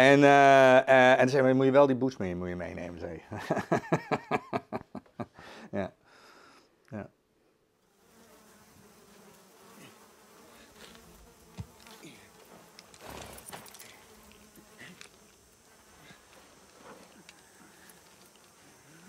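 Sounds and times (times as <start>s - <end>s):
flies buzzing: 7.8s - 19.0s.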